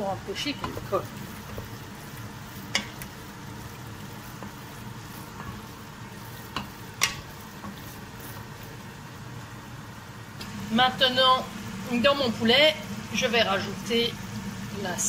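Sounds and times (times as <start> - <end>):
wooden spoon stirring dumplings: 0.0 - 14.8
steady low hum: 0.0 - 15.0
spoon knocking against pot: 2.7 - 3.1, 6.5 - 7.2.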